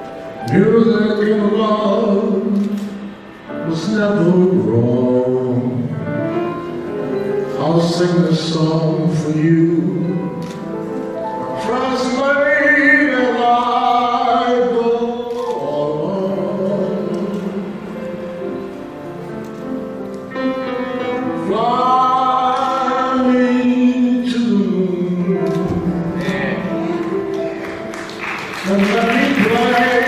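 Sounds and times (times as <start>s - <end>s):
instrumental accompaniment: 0.0s - 30.0s
man singing into microphone: 0.4s - 6.2s, 7.5s - 10.4s, 11.4s - 18.3s, 21.0s - 27.5s, 28.6s - 30.0s.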